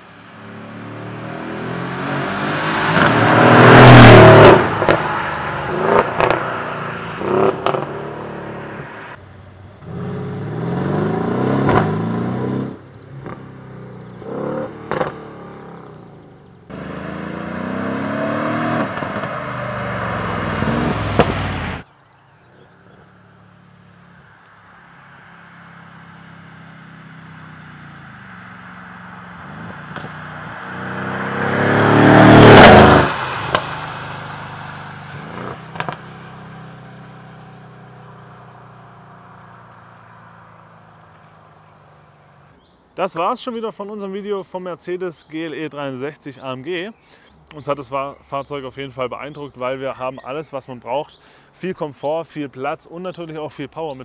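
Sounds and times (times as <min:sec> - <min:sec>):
car passing by: 0:00.4 - 0:09.2, 0:16.7 - 0:21.8, 0:24.2 - 0:38.6
engine accelerating hard: 0:00.4 - 0:09.2, 0:09.8 - 0:21.8, 0:25.9 - 0:42.5
exhaust cracks: 0:01.8 - 0:09.2, 0:09.9 - 0:16.1, 0:16.7 - 0:21.8, 0:27.0 - 0:42.5.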